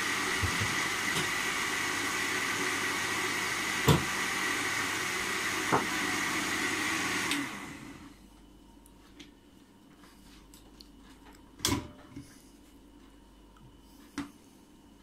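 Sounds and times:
blender whining: 0.0 - 8.1.

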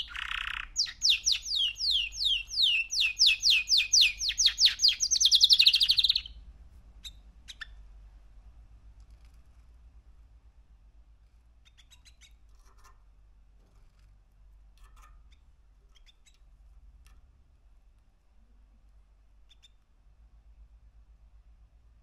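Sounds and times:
canary chirping: 0.0 - 6.4, 7.0 - 7.9, 11.6 - 12.9, 14.9 - 16.5, 19.4 - 19.8.

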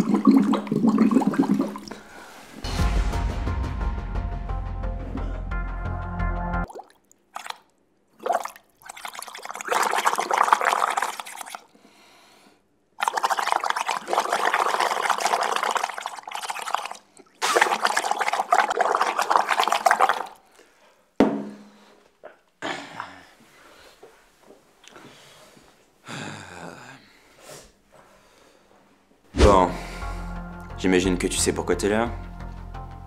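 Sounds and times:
water bubbling in a bottle: 0.0 - 2.1, 6.6 - 11.7, 13.0 - 20.4.

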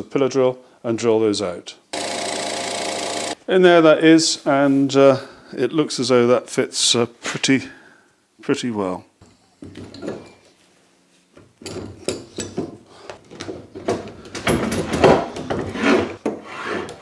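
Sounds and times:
wood and metal scraping and clunking: 11.6 - 17.0.

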